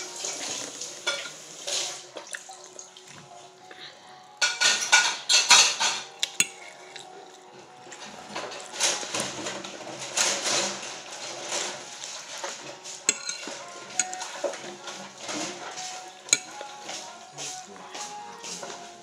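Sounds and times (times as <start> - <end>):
fork scraping on ceramic plate: 13.0 - 17.1.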